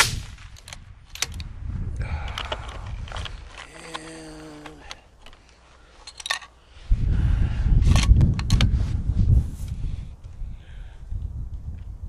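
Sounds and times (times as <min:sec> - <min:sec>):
wind buffeting microphone: 0:00.0 - 0:04.2, 0:06.7 - 0:12.0
rifle handling clicks: 0:00.6 - 0:01.5, 0:02.2 - 0:06.6.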